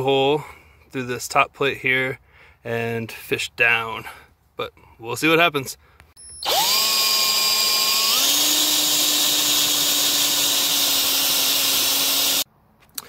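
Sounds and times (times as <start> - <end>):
cordless drill boring into wood: 6.2 - 12.4.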